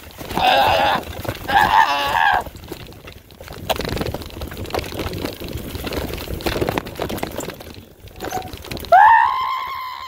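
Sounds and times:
bike tyres clicking and knocking: 0:00.0 - 0:10.0.

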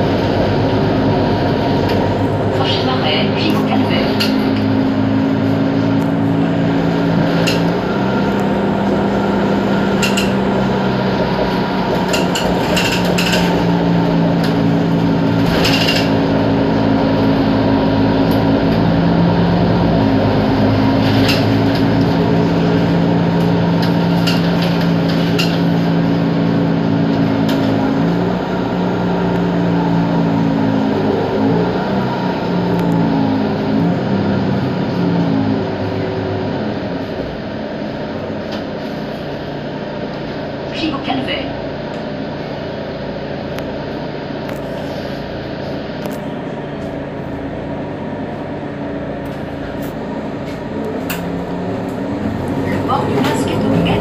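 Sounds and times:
bus engine drone: 0:00.0 - 0:54.0
sharp rattles and knocks: 0:11.3 - 0:13.8.

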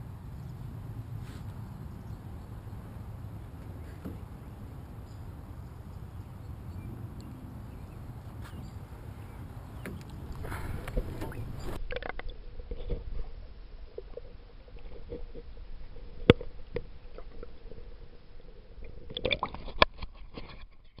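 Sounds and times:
faint steady hum: 0:00.0 - 0:19.9
water and wind rumble: 0:00.0 - 0:21.0
underwater clicks and knocks: 0:09.8 - 0:17.8, 0:18.8 - 0:21.0.

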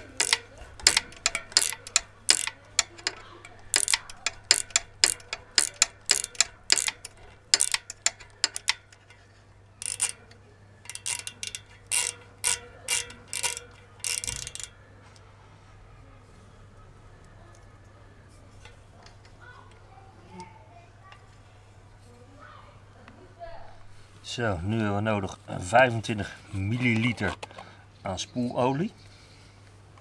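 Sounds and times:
ratcheting hex driver clicking: 0:00.0 - 0:14.8.

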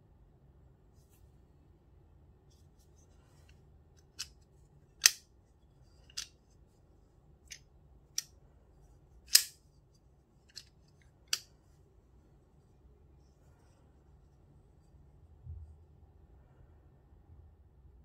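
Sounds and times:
folding knife blade clicking: 0:05.0 - 0:05.2, 0:09.3 - 0:09.6.

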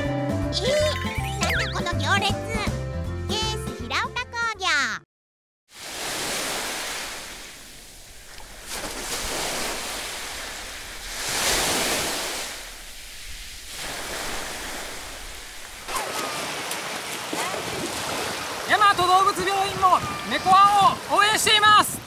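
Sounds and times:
small waves washing in: 0:05.7 - 0:22.0.

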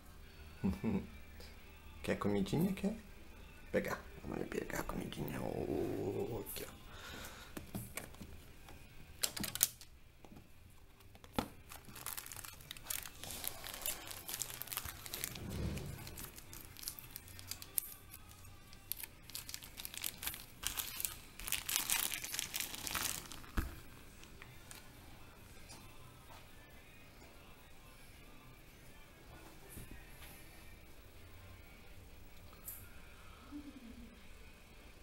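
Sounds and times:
plastic bag crinkling and rustling: 0:11.2 - 0:23.8.

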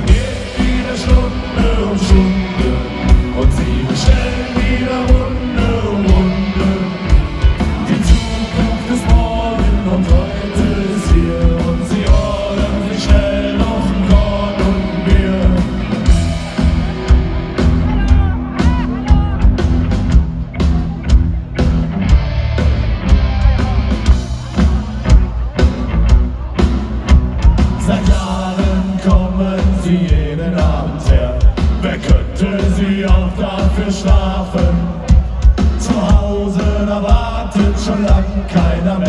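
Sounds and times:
sung lead vocal: 0:00.0 - 0:17.1, 0:27.5 - 0:39.0
live punk rock band: 0:00.0 - 0:39.0.

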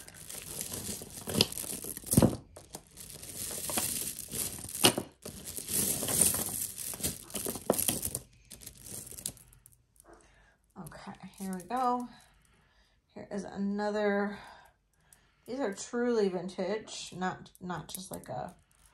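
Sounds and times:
wrapping material crinkling: 0:00.0 - 0:09.6.

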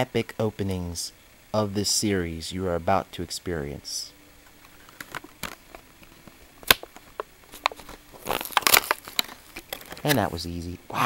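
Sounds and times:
plastic blister crackling: 0:04.5 - 0:10.6
plastic snapping: 0:04.6 - 0:10.3.

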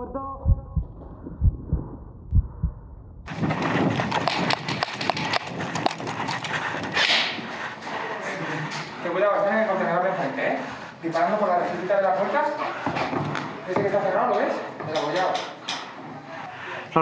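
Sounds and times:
muffled heartbeat thumps: 0:00.2 - 0:07.0.

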